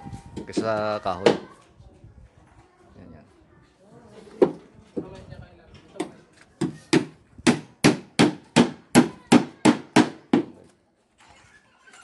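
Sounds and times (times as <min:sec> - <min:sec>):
hammer strikes: 0:06.0 - 0:10.6.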